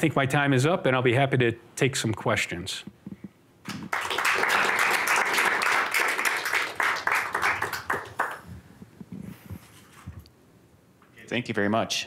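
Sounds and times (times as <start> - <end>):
audience applauding: 3.7 - 8.5.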